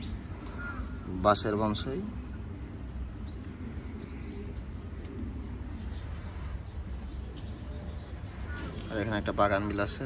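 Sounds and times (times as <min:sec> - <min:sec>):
faint bird calls: 0:00.0 - 0:10.0
steady low rumble: 0:00.0 - 0:10.0.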